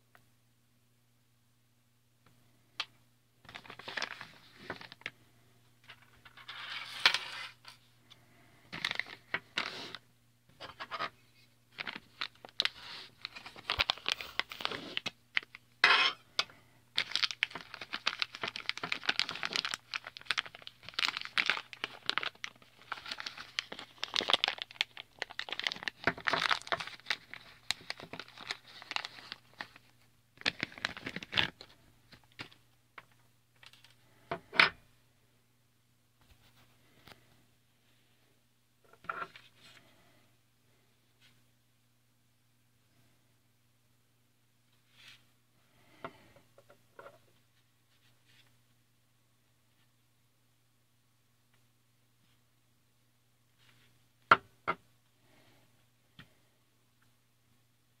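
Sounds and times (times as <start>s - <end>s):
plastic bag crinkling: 3.5s - 5.1s, 11.7s - 15.6s, 17.0s - 32.6s.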